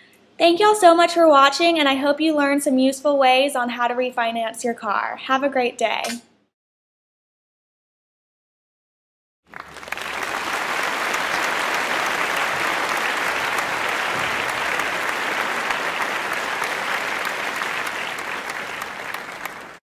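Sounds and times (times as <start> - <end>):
crowd applauding: 9.5 - 19.8.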